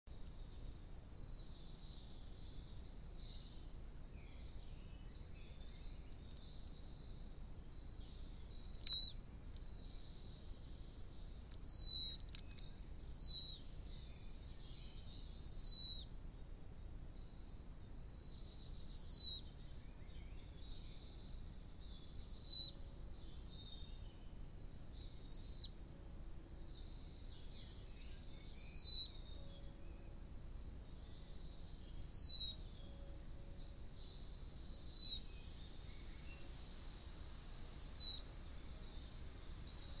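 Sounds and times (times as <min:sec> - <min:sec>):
blackbird whistled call: 0:08.5 - 0:09.2, 0:11.6 - 0:12.2, 0:13.1 - 0:16.1, 0:18.8 - 0:20.4, 0:22.1 - 0:22.8, 0:25.0 - 0:25.7, 0:27.6 - 0:30.0, 0:31.3 - 0:32.9, 0:34.5 - 0:36.4, 0:37.6 - 0:38.6.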